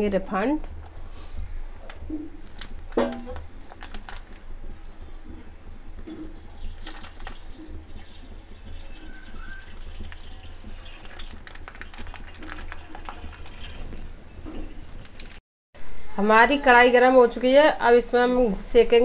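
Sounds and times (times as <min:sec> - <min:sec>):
plastic pouch crackling: 0:02.5 - 0:04.5, 0:11.0 - 0:13.4
oil pouring into a pan: 0:06.4 - 0:14.1.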